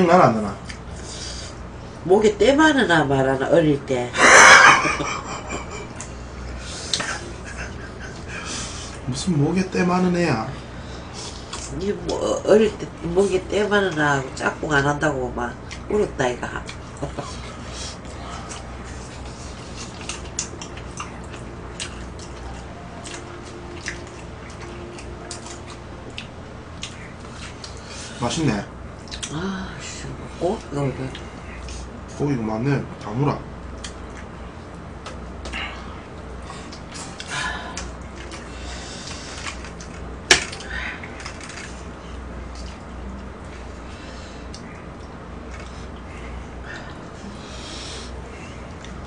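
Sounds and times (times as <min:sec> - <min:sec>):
steady low hum: 0:00.0 - 0:49.0
people chewing and lip smacking: 0:00.6 - 0:01.7, 0:05.3 - 0:09.1, 0:11.2 - 0:12.2, 0:16.6 - 0:28.2, 0:29.0 - 0:29.4, 0:33.0 - 0:49.0.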